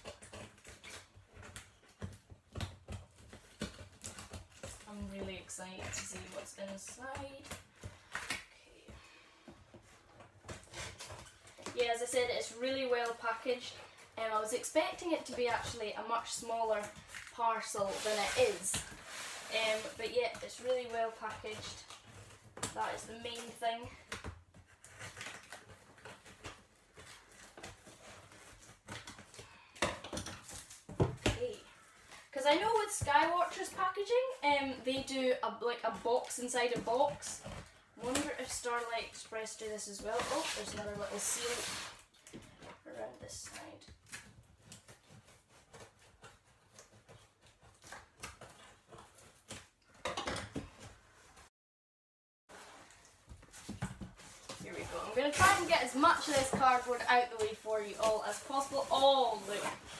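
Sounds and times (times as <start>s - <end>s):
cardboard taps and rustles: 53.2s - 59.9s.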